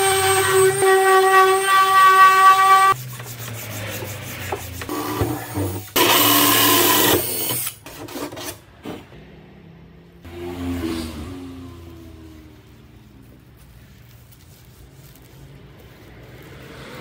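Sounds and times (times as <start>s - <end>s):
hand sanding wood: 0.8s - 6.0s
drill cutting into wood: 5.6s - 7.8s.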